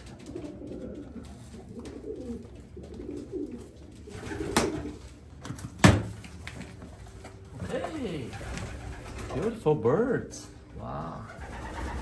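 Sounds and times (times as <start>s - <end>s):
pigeons cooing: 0.0s - 5.3s, 11.1s - 12.0s.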